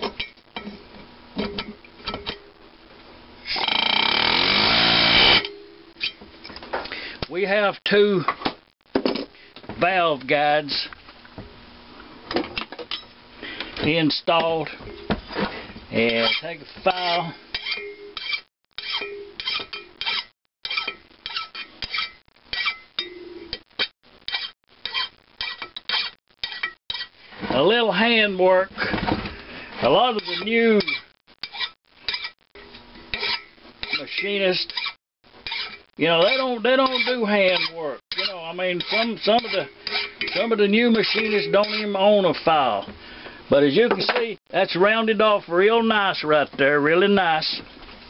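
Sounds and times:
air hammer rapid hammering: 3.6s - 5.5s
hand file scraping metal: 16.0s - 22.8s, 24.3s - 27.2s, 29.9s - 32.4s, 33.1s - 42.1s.

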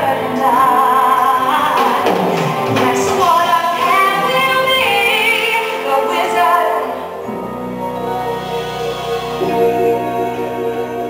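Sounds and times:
woman singing: 0.0s - 7.2s
orchestra playing: 0.2s - 11.0s.

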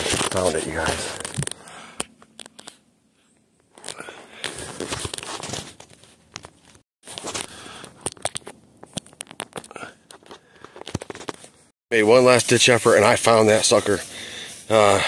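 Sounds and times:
phone handling rustling and crackling: 0.0s - 2.8s, 3.6s - 11.7s.

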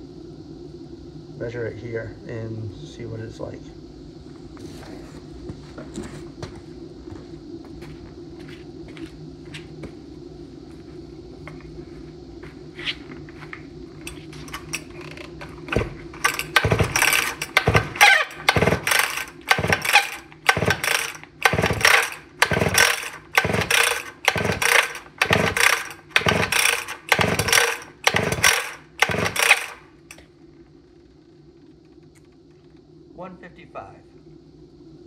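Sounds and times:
chainsaw starter rope pulls: 14.4s - 29.8s.

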